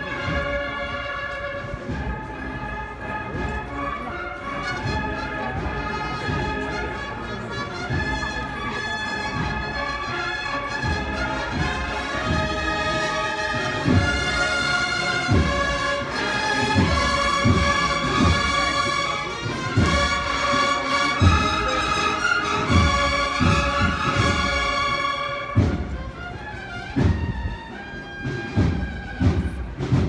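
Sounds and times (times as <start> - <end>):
brass sustained chords: 0.0 - 26.8
steady drum beat: 9.2 - 30.0.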